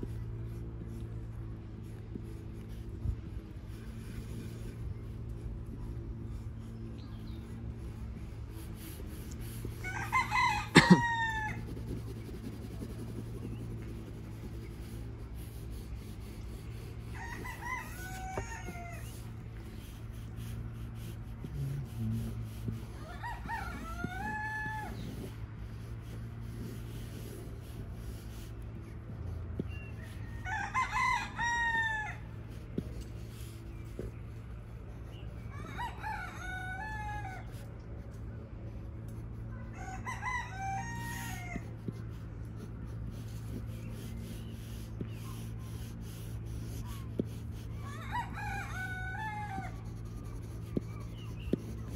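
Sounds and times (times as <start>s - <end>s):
rooster crowing: 9.8s - 11.8s, 17.0s - 19.2s, 22.9s - 25.3s, 30.0s - 32.3s, 35.5s - 37.6s, 39.5s - 41.7s, 47.8s - 51.7s.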